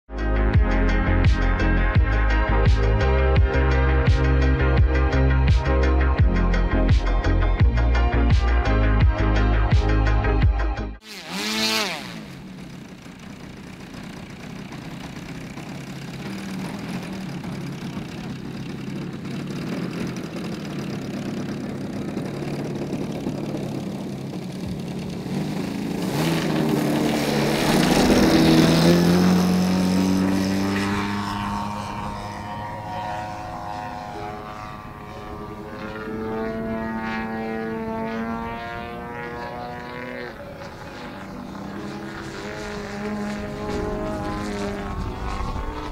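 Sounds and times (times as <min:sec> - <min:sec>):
model plane petrol engine: 0:11.0 - 0:45.9.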